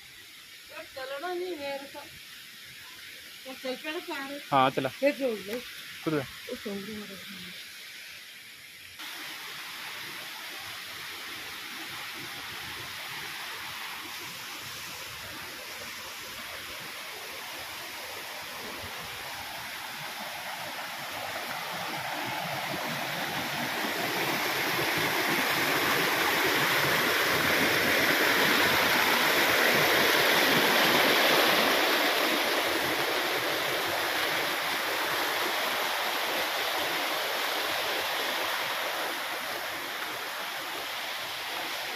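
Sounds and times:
water rushing over rocks: 8.8s - 41.9s.

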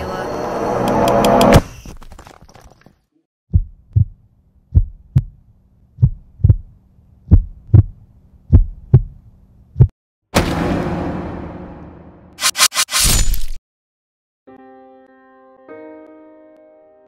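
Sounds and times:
heartbeat thumps: 3.5s - 5.4s, 6.0s - 9.9s.

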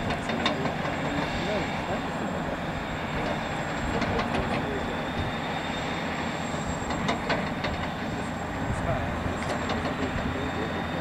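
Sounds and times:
sharp clicks and knocks: 0.0s - 1.1s, 6.9s - 8.0s
heavy machinery running: 0.0s - 11.0s.

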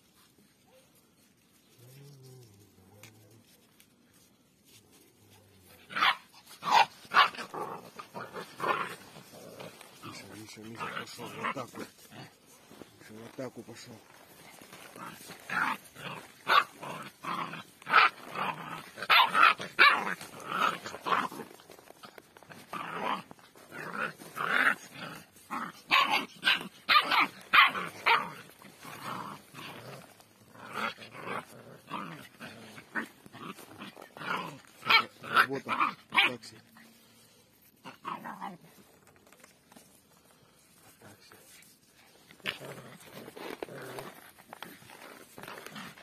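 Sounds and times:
puppies barking: 6.0s - 9.0s, 16.4s - 18.2s, 18.8s - 21.2s, 25.8s - 28.3s.

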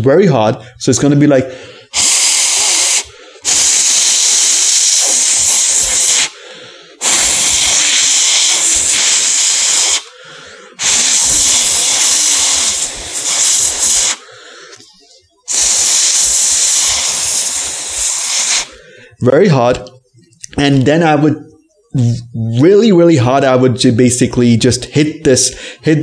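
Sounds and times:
hard breaths blown into mouse: 1.5s - 14.8s.

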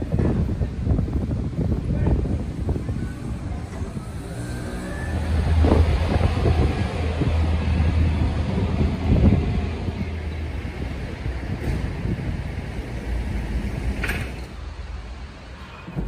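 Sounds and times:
street noise: 0.0s - 16.0s
vehicle engine humming: 2.8s - 15.3s.

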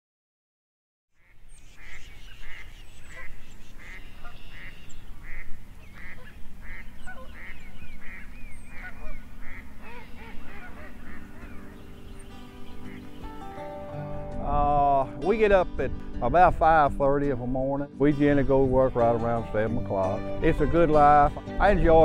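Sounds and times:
geese honking: 1.2s - 14.1s.

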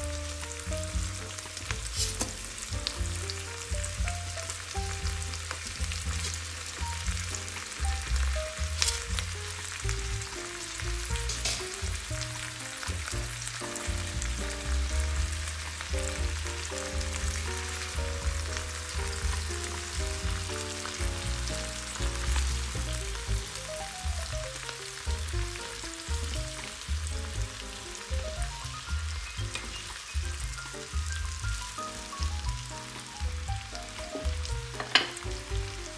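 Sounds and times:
background music with bass line: 0.0s - 35.9s
vegetables sizzling in a frying pan: 0.0s - 35.9s
wooden spatulas stirring: 0.2s - 3.2s, 4.4s - 9.7s, 33.9s - 35.5s.

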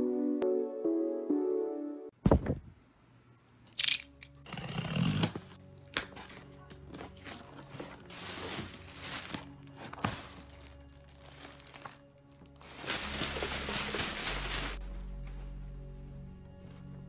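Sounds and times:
background music: 0.0s - 2.2s, 3.7s - 17.0s
plastic packing crinkling: 6.0s - 14.8s.

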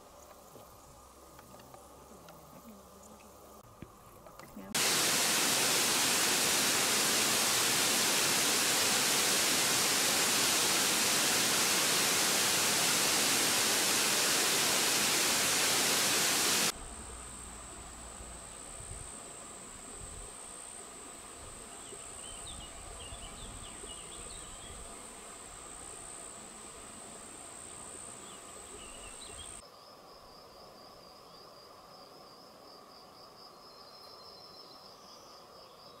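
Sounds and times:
faint chirps: 4.4s - 29.6s
high insect trill: 4.6s - 35.9s
pulsing insect trill: 4.7s - 34.0s
waterfall rushing: 4.8s - 16.8s.

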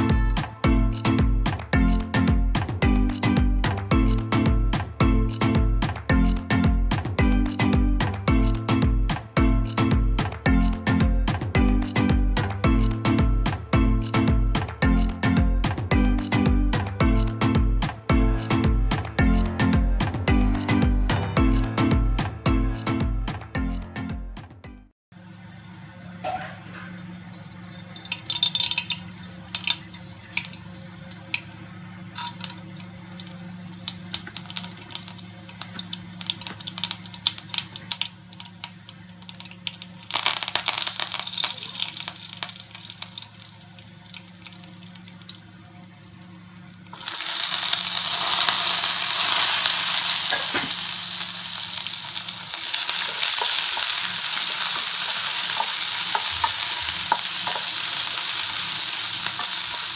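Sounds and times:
seeds popping in hot oil: 27.4s - 30.6s, 32.2s - 45.4s, 46.8s - 59.9s
food sizzling in oil: 27.7s - 30.6s, 32.2s - 45.4s, 46.8s - 59.9s.

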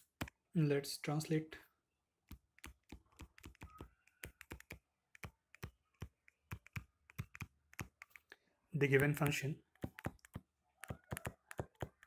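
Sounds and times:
stylus tapping on touchscreen: 2.2s - 8.2s, 8.9s - 12.0s.

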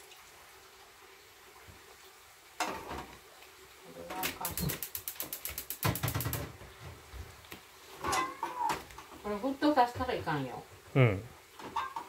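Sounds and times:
ratchet-like mechanical clicks: 4.3s - 6.4s
knock: 5.8s - 6.5s.

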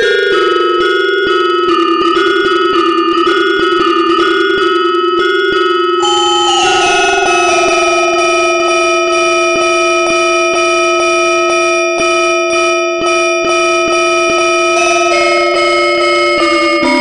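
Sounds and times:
held music note: 6.0s - 11.0s.

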